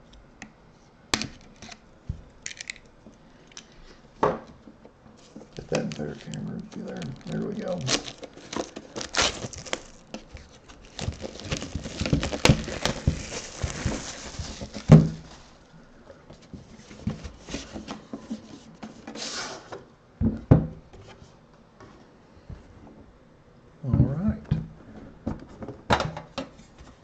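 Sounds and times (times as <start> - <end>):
plastic shrink wrap rustling: 5.2 - 15.7.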